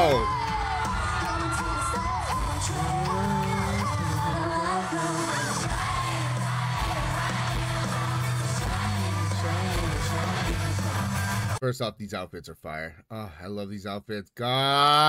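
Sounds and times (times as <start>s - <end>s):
crowd whooping and cheering: 0.0s - 11.6s
pop song with singing and bass: 0.0s - 11.6s.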